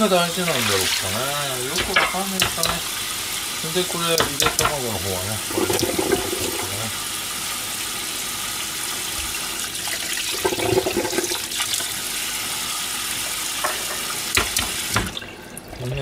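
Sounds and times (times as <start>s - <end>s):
tap running into metal sink: 1.6s - 2.9s, 4.1s - 6.8s, 13.2s - 15.2s.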